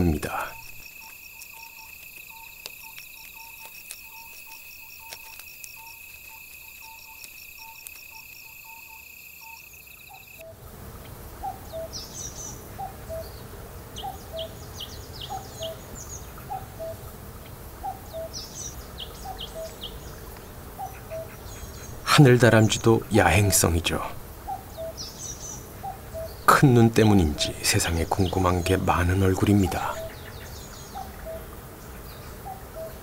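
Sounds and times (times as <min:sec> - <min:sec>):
insects trilling shrilly: 0:00.0 - 0:10.6, 0:20.7 - 0:31.5
birds chirping: 0:00.0 - 0:33.0.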